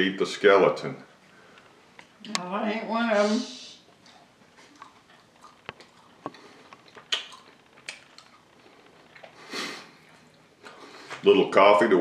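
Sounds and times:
fish bones crunching when chewed: 4.0 - 10.8.

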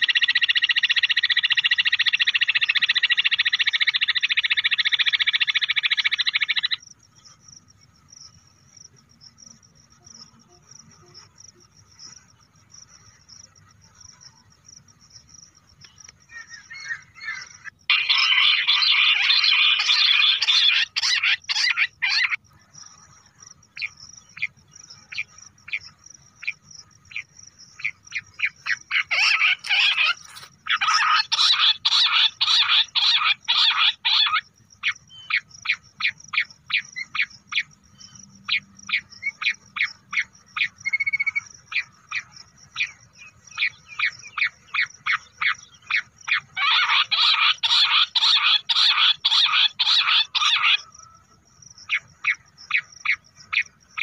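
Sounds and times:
quail calling: 0.0 - 6.8, 16.2 - 22.4, 26.4 - 37.7, 38.5 - 51.2.

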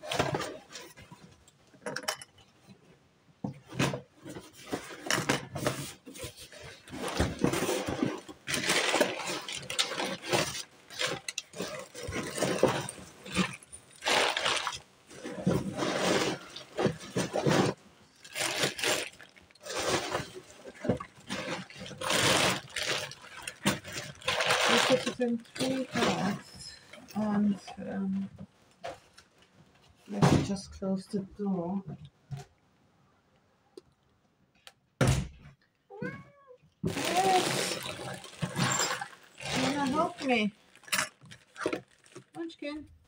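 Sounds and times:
plastic bags rustling: 3.7 - 30.1, 36.8 - 43.0
packing paper rustling: 5.5 - 27.0, 36.8 - 42.6.

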